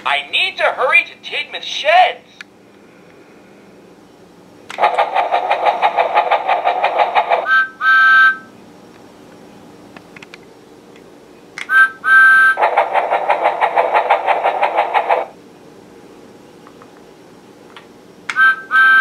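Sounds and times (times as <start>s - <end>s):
toy steam train chuffing: 4.7s - 8.0s, 12.6s - 15.3s
two-note whistle toots: 7.5s - 8.5s, 18.3s - 19.0s.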